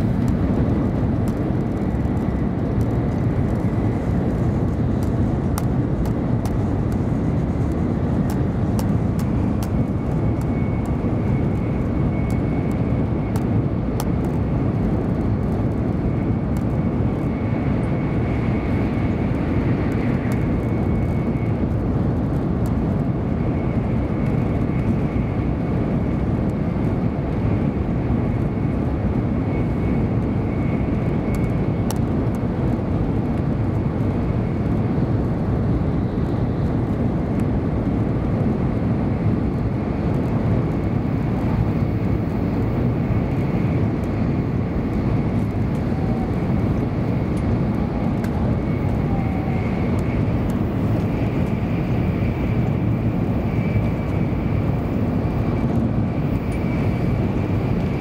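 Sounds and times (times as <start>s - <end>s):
train rumbling at high speed: 0.0s - 58.0s
faint high whine: 39.1s - 58.0s.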